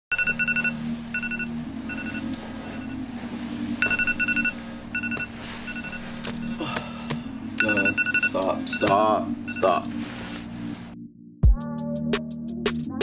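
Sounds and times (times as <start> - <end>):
phone alarm beeping: 0.1 - 3.0, 3.8 - 6.6, 7.6 - 9.9
low steady hum: 0.1 - 11.0.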